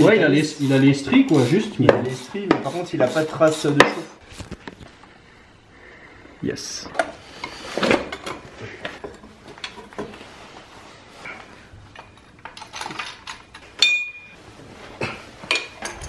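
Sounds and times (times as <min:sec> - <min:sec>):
metal parts clinking and knocking: 0:11.9 - 0:14.4, 0:15.5 - 0:16.0
metal ringing: 0:13.8 - 0:14.4.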